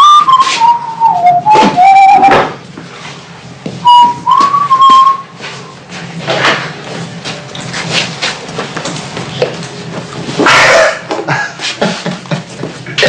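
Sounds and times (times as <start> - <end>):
person whistling a tune: 0.0 - 2.4, 3.8 - 5.4.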